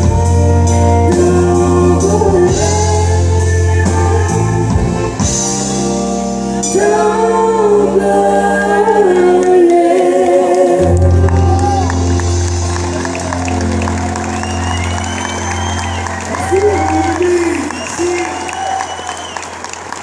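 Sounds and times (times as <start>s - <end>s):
drums: 0.0s - 7.3s, 11.0s - 19.4s
bass notes: 0.0s - 17.8s
woman and man singing: 1.0s - 5.0s, 6.7s - 11.9s.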